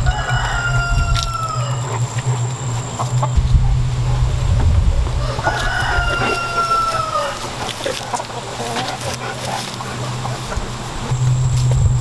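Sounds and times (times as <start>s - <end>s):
rooster crowing: 0.0s - 3.4s, 5.2s - 10.6s
chickens clucking: 0.0s - 12.0s.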